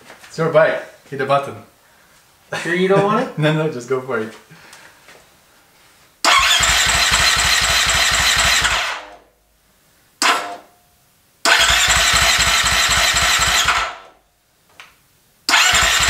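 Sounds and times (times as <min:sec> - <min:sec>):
electric starter cranking engine: 0:06.2 - 0:09.2, 0:11.4 - 0:14.1, 0:15.5 - 0:16.0.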